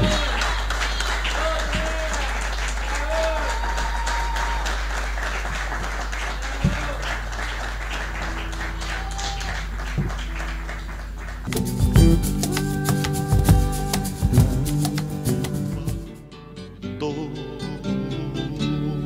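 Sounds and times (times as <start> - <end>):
crowd shouts: 0.0 - 4.8, 8.8 - 9.7
audience applauding: 0.0 - 15.8.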